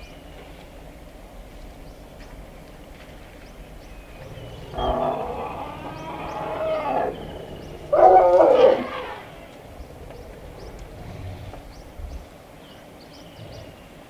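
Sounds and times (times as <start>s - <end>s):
elephant calling: 4.1s - 12.2s.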